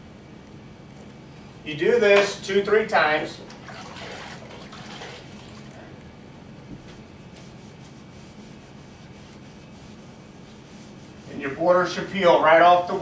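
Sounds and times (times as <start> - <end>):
wet sponge rubbing on wallpaper: 7.3 - 12.2.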